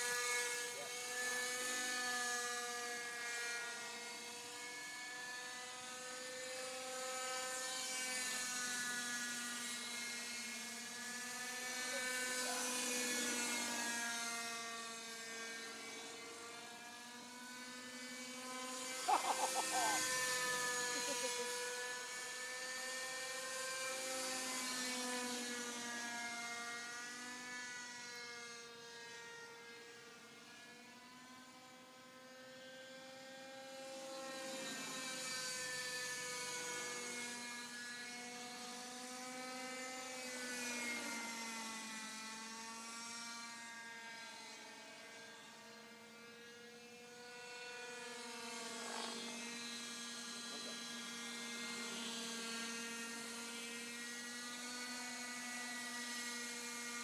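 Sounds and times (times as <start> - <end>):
model helicopter whine: 0.0 - 57.0.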